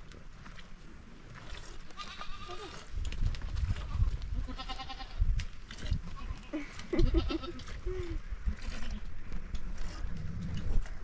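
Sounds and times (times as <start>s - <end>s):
sheep bleating: 3.8s - 5.2s.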